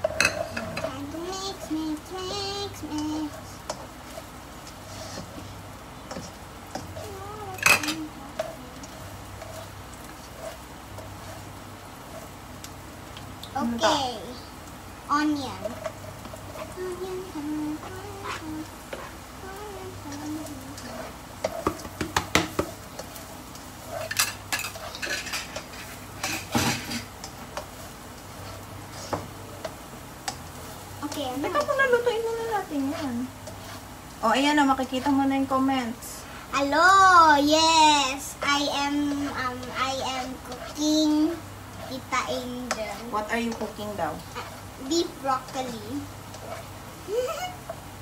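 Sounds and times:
spatula scraping and tapping wok: 0.0 - 12.8, 15.2 - 16.8, 17.7 - 19.3, 20.0 - 36.5, 38.2 - 46.9
garlic frying in oil: 0.0 - 48.0
spatula knocking and scraping in wok: 20.8 - 23.2.

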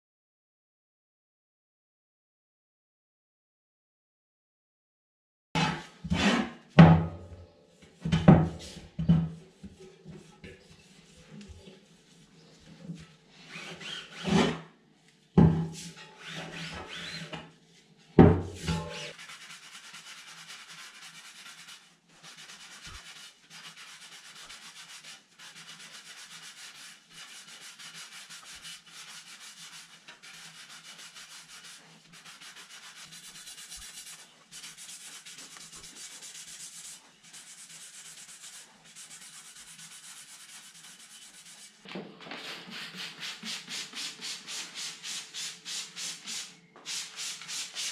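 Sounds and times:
rag scrubbing bicycle wheel: 18.7 - 46.3.

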